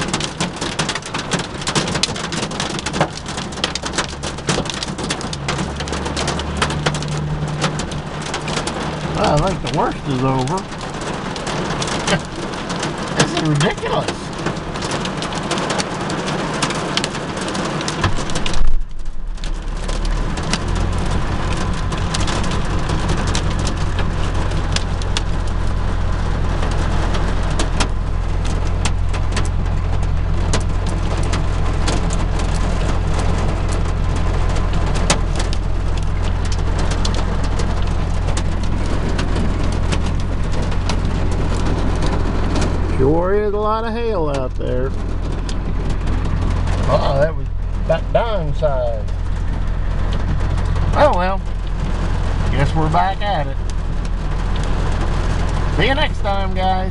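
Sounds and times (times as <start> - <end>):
engine idling: 0.0 - 56.9
rain and hail on windshield: 0.0 - 56.9
loud thump: 18.0 - 19.7.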